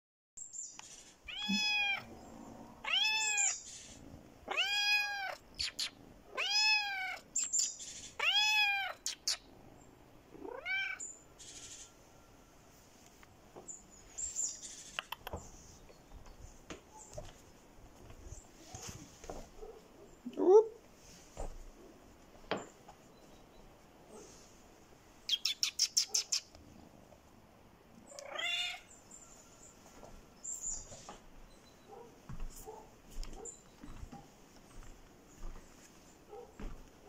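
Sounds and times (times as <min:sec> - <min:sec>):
kitten meowing: 0:01.3 - 0:02.1, 0:02.8 - 0:03.6, 0:04.5 - 0:07.2, 0:08.2 - 0:09.4, 0:10.4 - 0:11.0, 0:28.2 - 0:28.8
faint clicks and scuffs: 0:13.0 - 0:19.9, 0:32.3 - 0:37.0.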